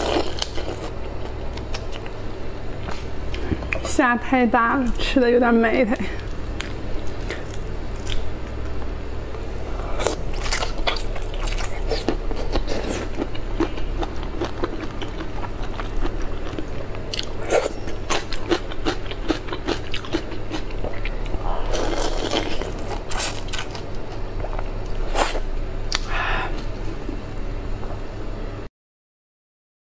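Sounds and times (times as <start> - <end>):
biting and chewing: 9.9 - 26.1.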